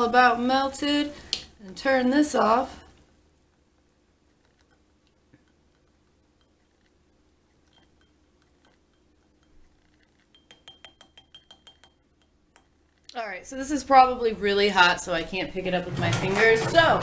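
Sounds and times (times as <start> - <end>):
spoon clinking on glass jar: 7.6 - 9.6, 10.2 - 12.7.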